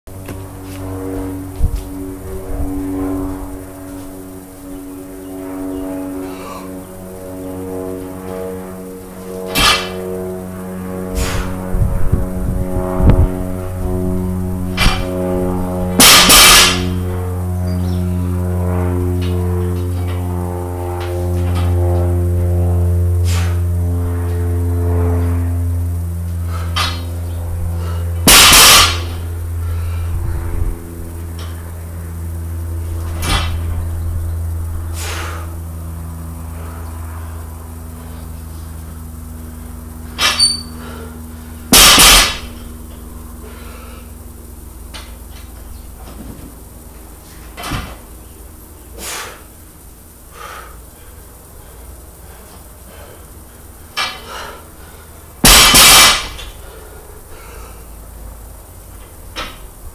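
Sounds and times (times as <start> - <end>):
low hum with steady tones: 0.1 - 59.9
barbell crashing on concrete: 9.5 - 10.0, 16.0 - 17.0, 26.7 - 27.0, 28.3 - 29.2, 33.1 - 33.7, 40.2 - 40.7, 41.7 - 42.7, 55.4 - 56.6.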